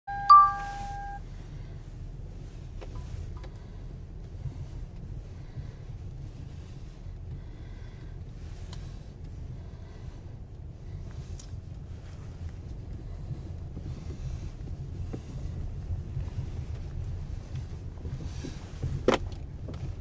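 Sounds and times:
short electronic beep: 0.1s - 1.2s
steady low rumble: 0.1s - 20.0s.

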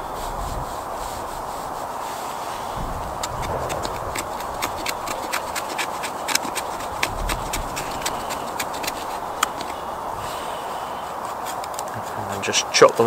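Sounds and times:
knife scraping wood stick: 0.7s - 13.0s.

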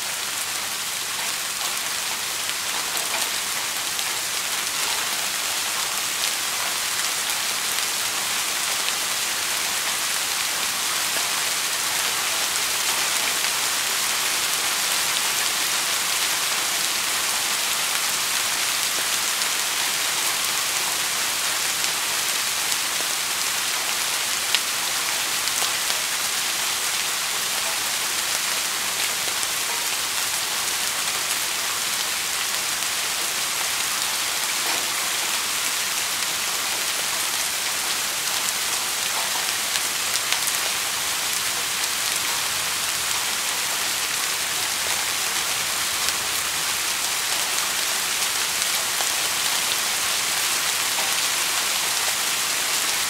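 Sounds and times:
steady rain falling: 0.0s - 53.0s.

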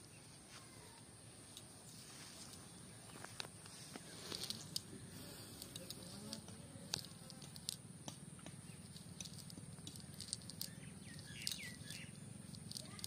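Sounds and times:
faint low hum: 0.0s - 13.0s
net weights clicking and tapping: 5.6s - 13.0s.

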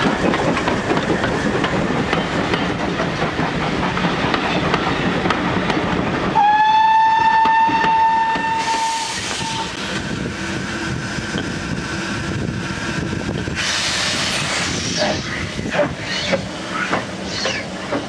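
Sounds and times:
steam locomotive chuffing: 0.0s - 18.0s
steam locomotive rumble: 0.0s - 18.0s
loud hiss of steam: 8.2s - 18.0s.

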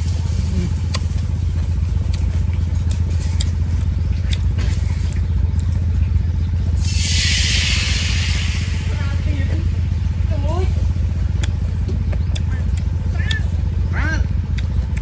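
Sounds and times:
low engine drone: 0.0s - 15.0s
loud hiss: 6.8s - 10.3s.

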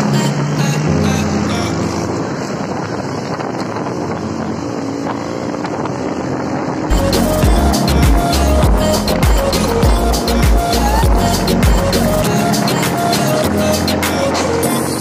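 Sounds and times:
motorcycle engines running: 0.0s - 15.0s
wind noise on microphone: 0.2s - 15.0s
music with heavy bass beat: 6.9s - 15.0s.

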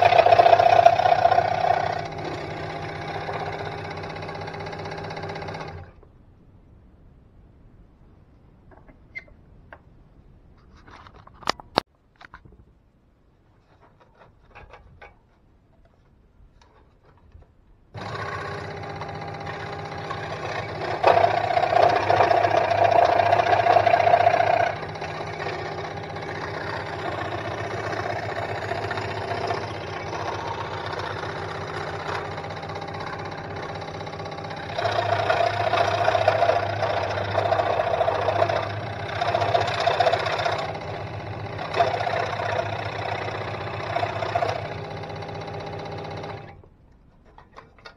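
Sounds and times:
saw blade cutting plywood: 0.0s - 5.9s, 18.0s - 46.2s
scroll saw humming: 0.0s - 6.0s, 18.0s - 46.6s.

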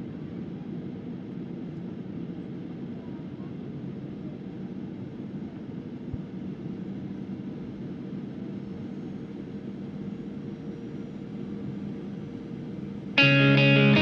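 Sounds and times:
jet engine cabin drone: 0.0s - 14.0s
guitar music: 13.2s - 14.0s.

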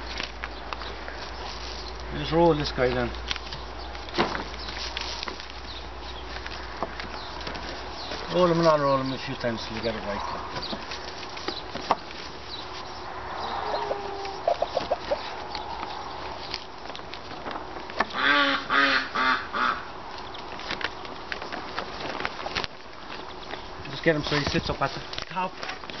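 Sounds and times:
plastic sheeting crinkling: 0.0s - 18.0s, 20.1s - 26.0s
bird harsh calls: 12.4s - 16.6s, 18.1s - 20.4s.

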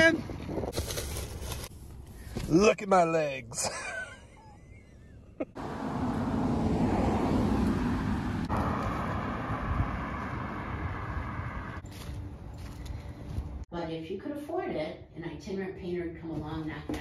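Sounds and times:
traffic noise: 0.0s - 13.7s
car driving past: 5.6s - 11.8s.

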